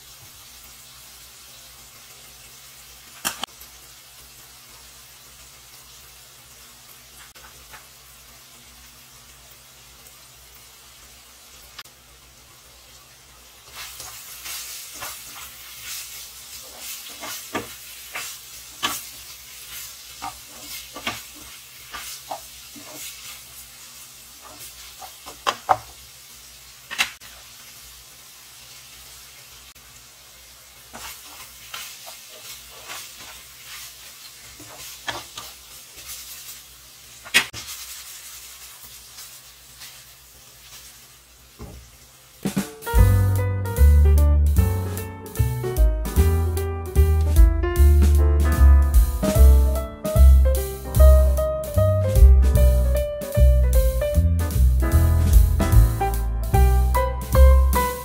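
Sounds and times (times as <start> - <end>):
food sizzling in a frying pan: 0.0 - 58.0
spatula scraping and clicking on pan: 13.8 - 23.4, 34.5 - 36.4.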